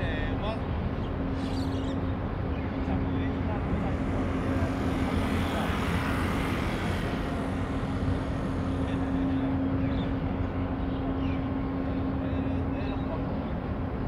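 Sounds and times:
heavy outdoor rumble: 0:00.0 - 0:14.0
low engine hum: 0:00.0 - 0:14.0.

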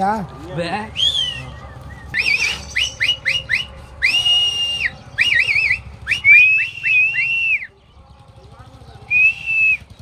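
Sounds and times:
shrill whistling: 0:00.9 - 0:07.7, 0:09.1 - 0:10.0.

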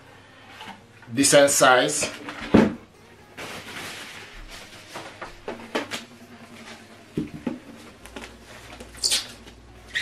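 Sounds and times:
packing wrap rustling: 0:03.3 - 0:06.0.

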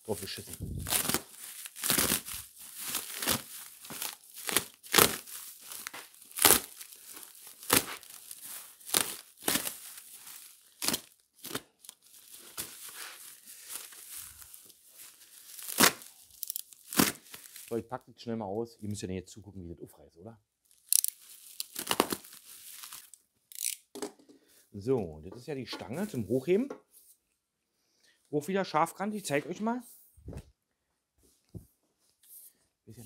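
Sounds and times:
plastic packaging rustling and ripping: 0:00.0 - 0:17.8, 0:20.7 - 0:23.6.

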